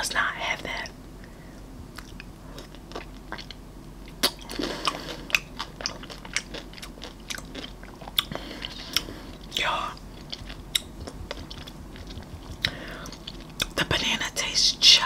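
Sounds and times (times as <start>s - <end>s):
wet chewing: 1.9s - 13.8s.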